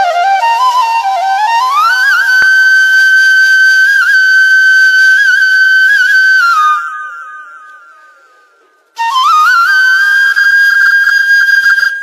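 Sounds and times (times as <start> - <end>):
flute melody: 0.0 - 12.0.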